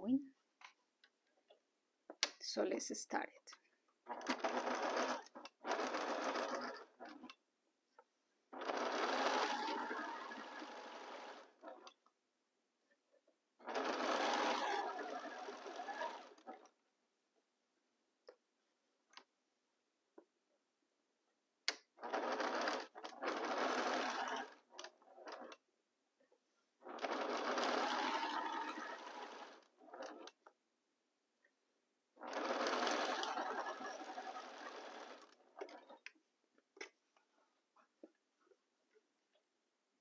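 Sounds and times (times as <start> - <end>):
sewing machine stitching: 4.0 - 7.4, 8.5 - 12.0, 13.6 - 16.8, 21.7 - 25.6, 26.8 - 30.5, 32.2 - 36.1.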